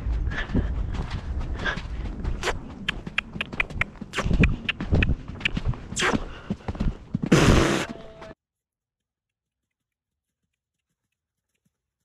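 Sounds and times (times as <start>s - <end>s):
horse hoofbeats: 0.0s - 8.4s.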